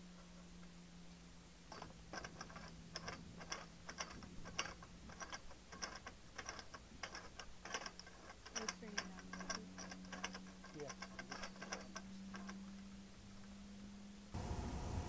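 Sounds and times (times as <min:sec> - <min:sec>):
low steady hum: 0:00.0 - 0:15.0
faint irregular clicking: 0:01.7 - 0:13.6.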